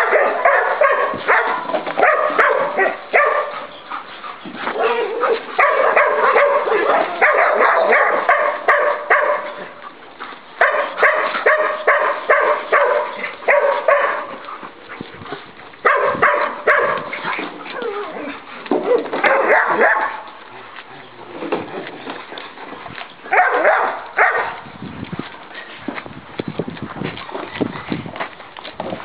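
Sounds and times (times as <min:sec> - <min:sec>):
dogs barking: 0:00.0 - 0:03.8, 0:04.7 - 0:09.8, 0:10.6 - 0:14.6, 0:15.8 - 0:18.0, 0:18.7 - 0:20.4, 0:23.3 - 0:24.6.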